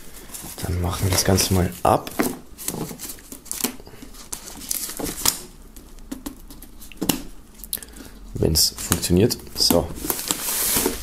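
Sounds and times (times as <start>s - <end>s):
plastic film crinkling: 0.2s - 5.5s, 8.8s - 11.0s.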